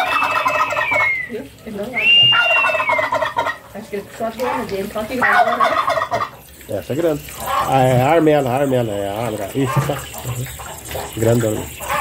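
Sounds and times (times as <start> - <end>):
turkey gobbling: 0.0 - 1.4, 2.0 - 6.4, 7.4 - 7.8.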